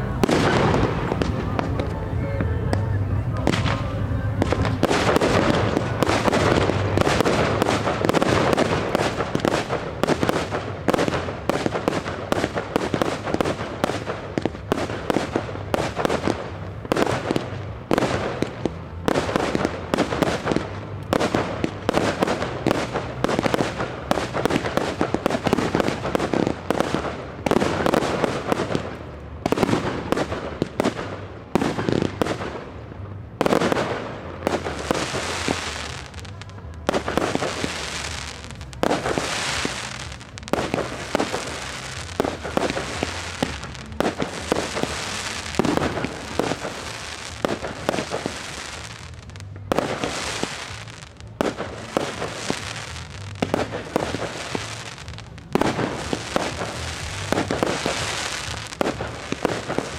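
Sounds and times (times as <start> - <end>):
fireworks bursting: 0.0 - 59.9.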